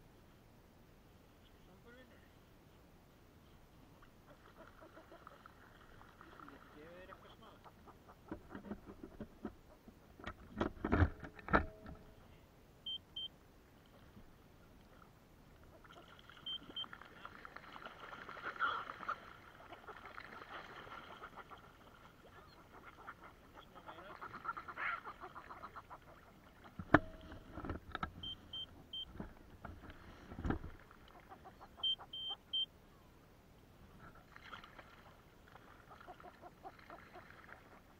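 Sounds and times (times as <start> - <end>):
birds splashing on water: 3.9 - 9.6, 13.8 - 32.7, 34.1 - 37.9.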